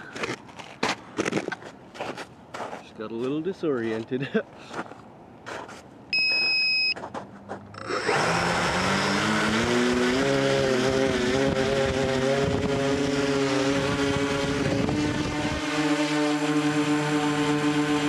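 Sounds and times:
electronic beep: 6.1s - 7.0s, 7.7s - 8.2s
drone motors buzzing whine: 7.7s - 18.0s.

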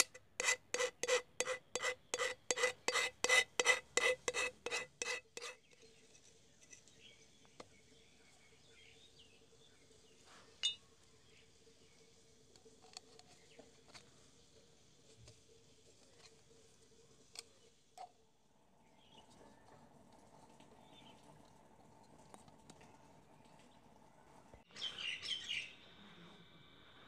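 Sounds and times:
stick scraping aluminium can: 0.0s - 6.2s.

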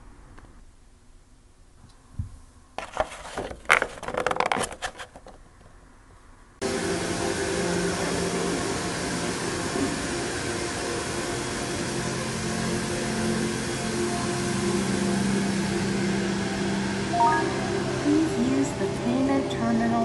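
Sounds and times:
steady hiss with low hum: 0.0s - 2.8s.

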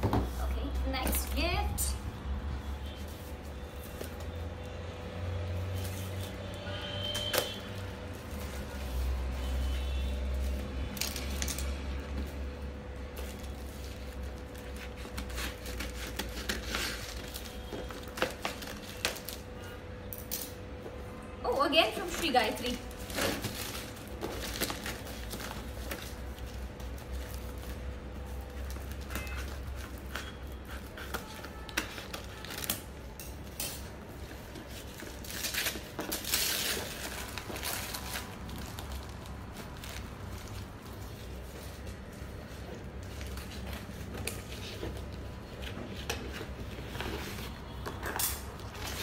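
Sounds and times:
scissors cutting plastic: 13.2s - 20.6s, 28.4s - 40.6s, 43.1s - 49.0s
plastic crinkling: 21.9s - 49.0s.

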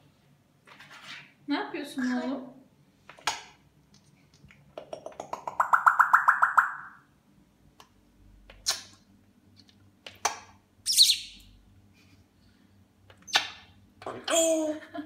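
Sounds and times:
parrot chirps and clicks: 4.4s - 7.0s.

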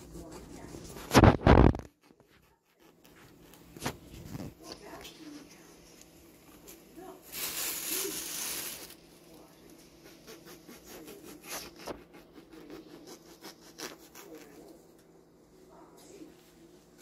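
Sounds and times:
bread knife sawing: 10.0s - 14.6s.

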